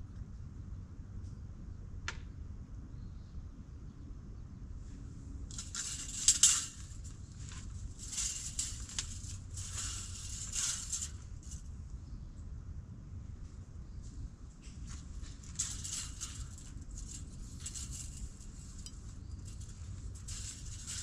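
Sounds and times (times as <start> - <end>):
rough scraping strokes: 5.5 - 11.7, 15.2 - 21.0.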